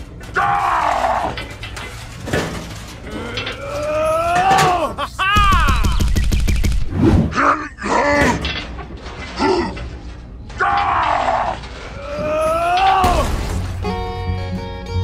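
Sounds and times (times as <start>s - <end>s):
music: 12.5s - 15.0s.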